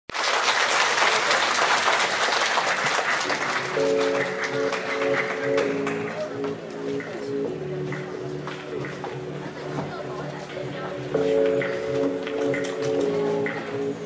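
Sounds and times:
audience applause: 0.1 - 6.2
music with long held notes: 3.4 - 14.0.

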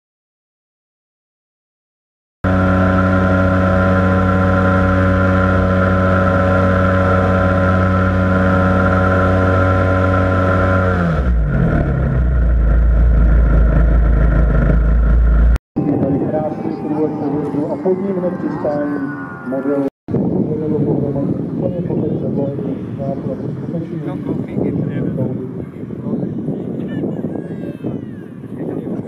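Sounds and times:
model aircraft engine: 2.5 - 15.6.

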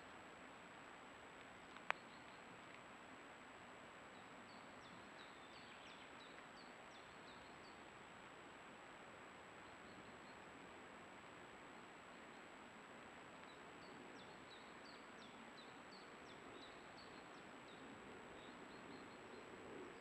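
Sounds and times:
microphone hiss: 0.0 - 20.0
bird chirping: 1.8 - 2.5, 4.1 - 7.8, 13.4 - 20.0.

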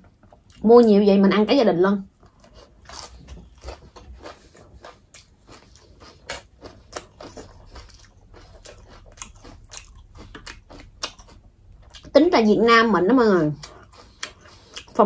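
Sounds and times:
person chewing food: 2.2 - 12.1, 13.5 - 15.0.

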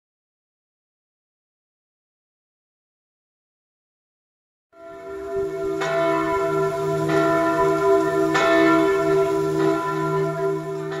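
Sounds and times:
church bells ringing: 4.8 - 11.0.

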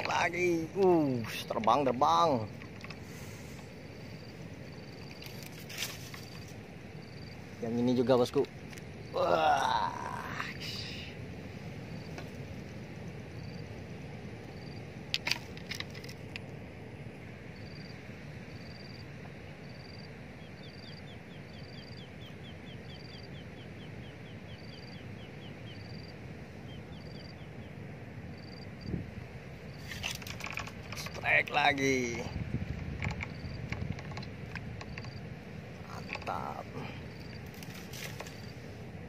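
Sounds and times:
wind rushing: 31.6 - 34.7.

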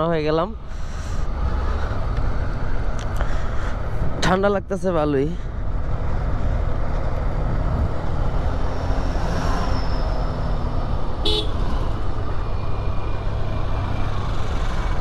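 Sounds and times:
motorcycle horn beep: 11.2 - 11.6.

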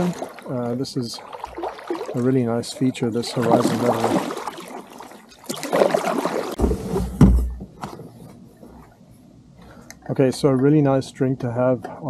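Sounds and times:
water swishing around kayak: 0.0 - 9.0.

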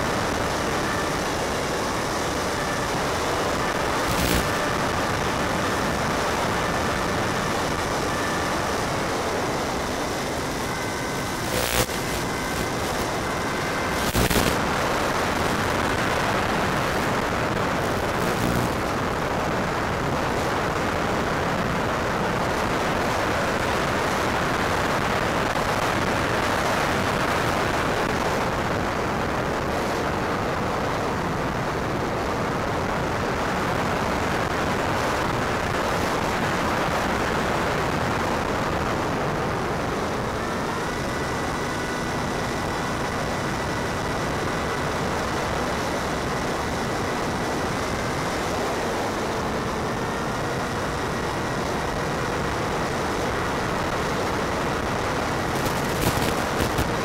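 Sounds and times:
steady rushing hiss: 0.0 - 25.2, 54.4 - 57.0
electric motor whine: 0.0 - 30.6, 35.5 - 57.0
short crackles: 4.0 - 4.5, 11.4 - 13.2, 13.9 - 14.6, 55.5 - 56.9.

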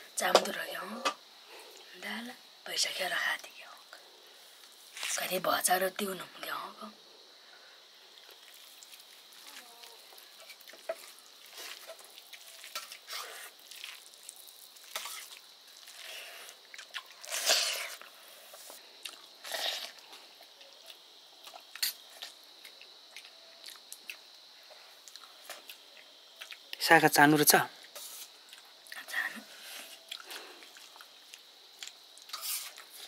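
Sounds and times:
soft wet chewing: 8.1 - 18.2, 19.0 - 26.8, 27.8 - 29.1, 29.8 - 33.0.

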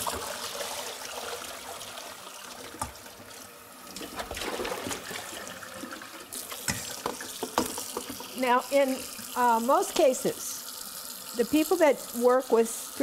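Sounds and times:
tap water running into sink: 0.0 - 13.0.

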